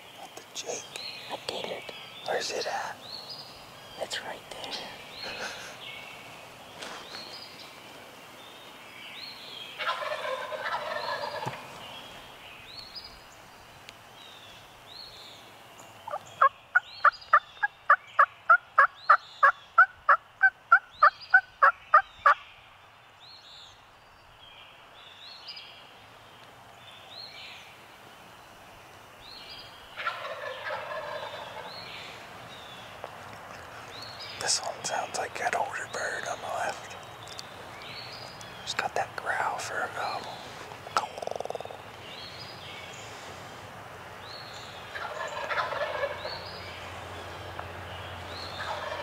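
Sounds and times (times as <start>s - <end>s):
songbird chirps: 0.0s - 49.0s
turkey gobbles: 9.8s - 11.6s, 30.0s - 31.7s, 39.6s - 42.0s, 44.9s - 46.2s, 48.6s - 49.0s
hen turkey yelps: 44.9s - 46.2s.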